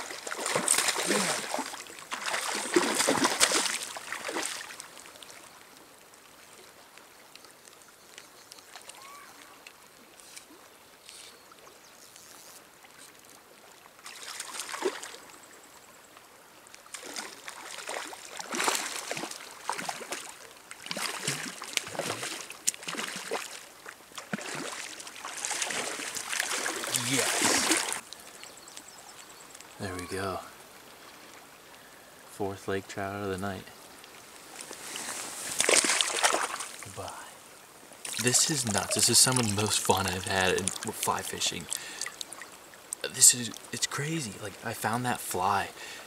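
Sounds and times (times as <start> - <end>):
fish thrashing and splashing: 0.0 - 4.8, 16.9 - 28.0, 35.0 - 36.8, 38.0 - 42.5
faint flowing water: 0.0 - 46.0.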